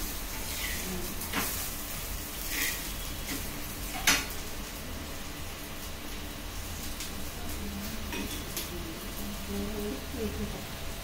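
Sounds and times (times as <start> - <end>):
batter sizzling in oil: 0.0 - 11.0.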